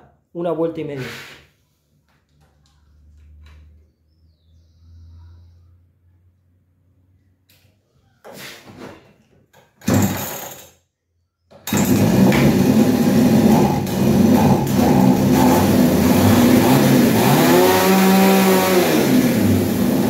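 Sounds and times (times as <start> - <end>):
chainsaw starter pull: 9.8 - 10.7, 11.6 - 20.0
chainsaw engine running: 11.7 - 20.0.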